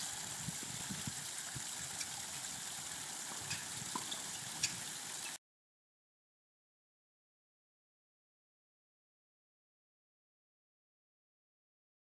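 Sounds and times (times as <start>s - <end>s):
waterfall splashing: 0.0s - 5.4s.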